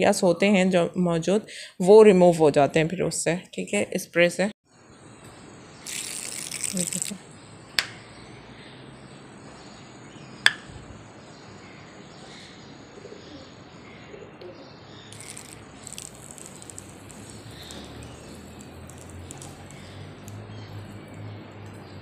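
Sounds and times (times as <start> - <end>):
birds chirping faintly: 4.6 - 22.0
spray bottle hisses: 5.8 - 7.2, 15.1 - 20.4.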